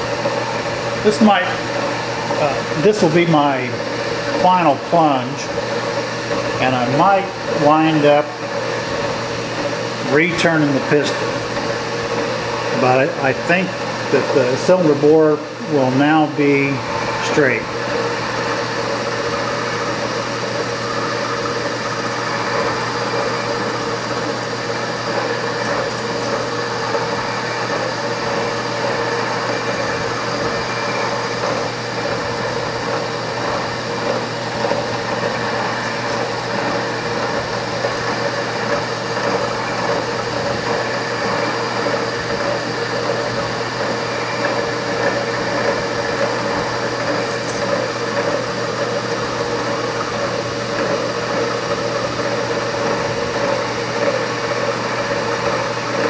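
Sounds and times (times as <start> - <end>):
milling machine hum: 0.0 - 56.0.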